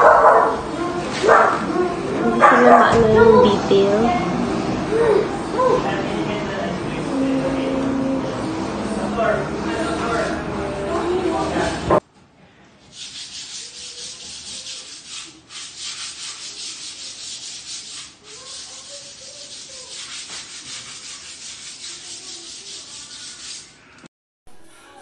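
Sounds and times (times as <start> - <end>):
sandpaper rubbing on wood: 12.9 - 23.8.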